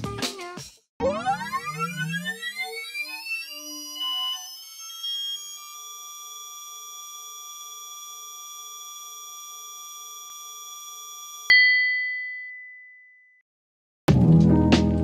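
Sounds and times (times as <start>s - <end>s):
electronic blip: 1.0s - 5.4s
synthesized electronic tone: 1.0s - 5.7s.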